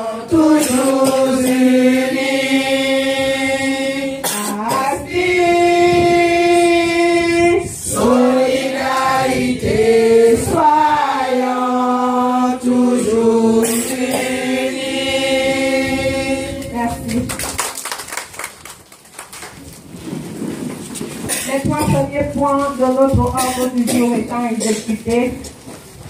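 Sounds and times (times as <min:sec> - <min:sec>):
women singing together: 0:00.0 - 0:17.3.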